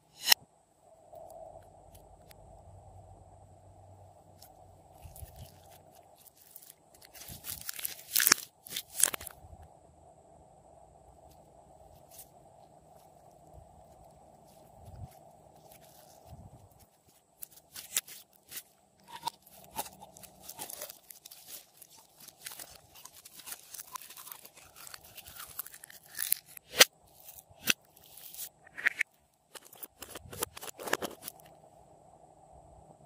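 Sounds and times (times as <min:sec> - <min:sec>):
slime crackling and popping: 0:05.0 - 0:09.3, 0:17.1 - 0:28.5.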